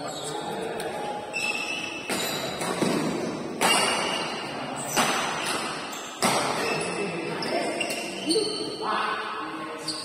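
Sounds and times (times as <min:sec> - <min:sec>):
shoes squeaking on court: 0:00.0 - 0:08.8, 0:09.8 - 0:10.0
racket hitting shuttlecock: 0:02.0 - 0:06.8.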